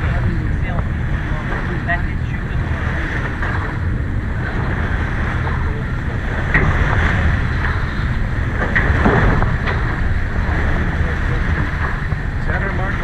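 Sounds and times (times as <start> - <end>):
water rushing along hull: 0.0 - 13.0
wind buffeting microphone: 0.0 - 13.0.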